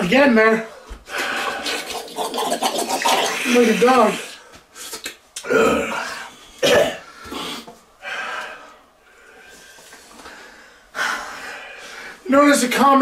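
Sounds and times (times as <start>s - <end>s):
man breathing: 0.8s - 1.8s, 5.9s - 12.3s
man coughing: 6.6s - 7.0s.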